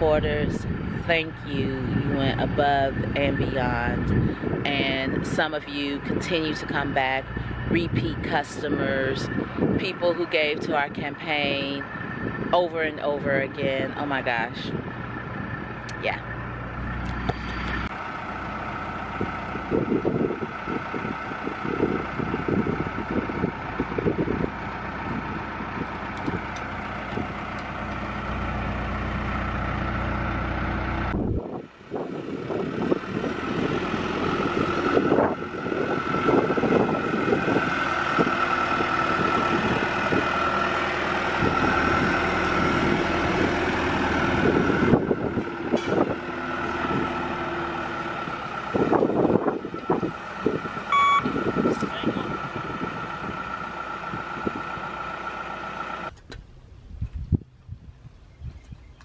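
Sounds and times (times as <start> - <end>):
diesel engine running: 0.0 - 57.7.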